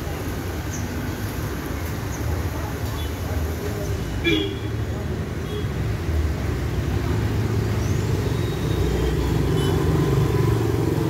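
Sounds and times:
cars driving past: 4.7 - 11.0.

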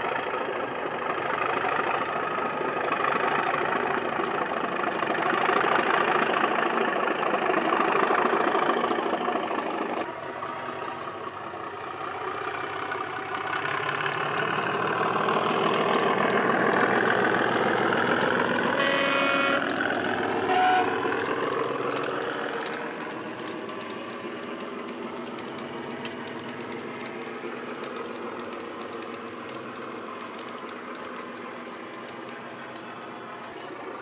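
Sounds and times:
model diesel engine sound from speaker: 0.0 - 34.0
model wagon wheels clicking on track: 0.0 - 34.0
locomotive horn: 18.7 - 21.3.

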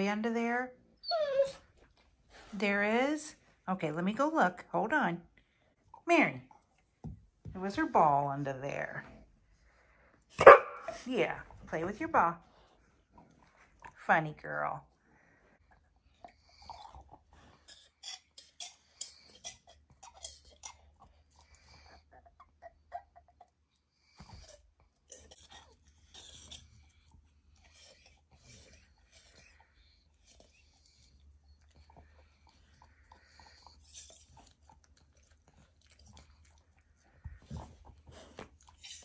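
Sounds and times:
dog chewing a ball: 15.3 - 39.0.

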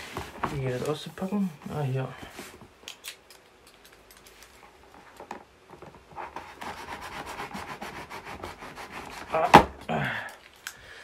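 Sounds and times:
scissor blade scraping cardboard: 6.2 - 9.4.

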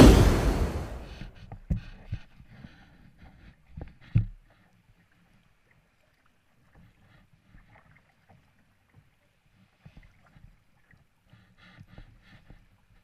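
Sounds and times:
low rumble: 0.0 - 1.2
water lapping at hull: 0.0 - 13.0
paddle splashes and drips: 3.2 - 13.0.

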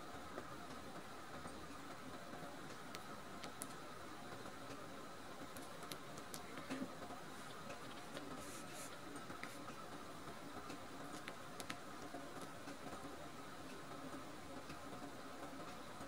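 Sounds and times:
faint hiss: 2.4 - 12.2
small clicks: 5.5 - 6.8
soft rustles: 6.4 - 9.8.

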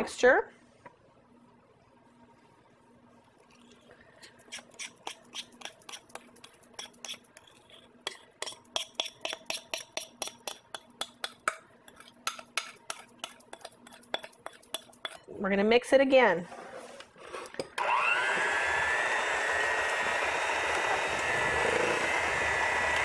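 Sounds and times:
utensil beating batter in bowl: 4.2 - 15.3, 17.5 - 23.0.

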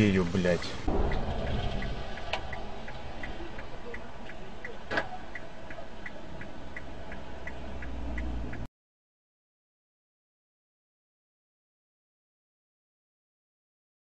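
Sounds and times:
engine and road rumble: 0.0 - 8.7
turn signal ticking: 1.1 - 8.7.

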